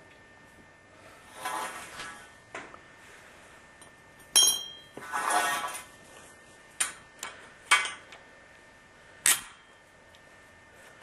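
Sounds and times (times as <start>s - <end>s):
metal pipe clinking on concrete: 3.8s - 5.0s.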